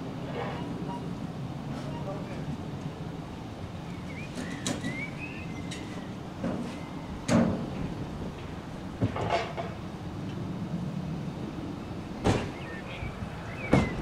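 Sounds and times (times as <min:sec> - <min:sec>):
diesel locomotive rumbling: 0:00.0 - 0:14.0
bird chirping: 0:03.8 - 0:07.2, 0:12.4 - 0:14.0
sharp knocks: 0:13.7 - 0:14.0.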